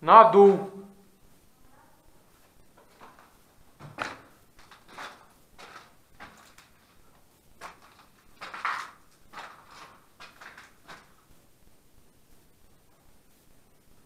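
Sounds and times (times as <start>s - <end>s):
footsteps crunching on gritty floor: 2.8s - 11.2s.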